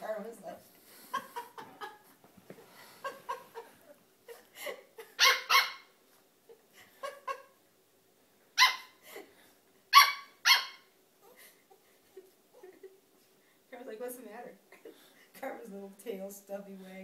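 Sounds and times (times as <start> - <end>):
puppy barking: 5.2 - 5.9, 8.6 - 9.0, 9.9 - 10.9.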